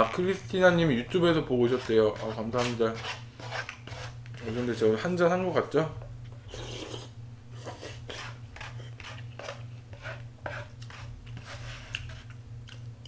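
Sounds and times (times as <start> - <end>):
steady low hum: 0.0 - 13.0
slurping: 6.4 - 8.1.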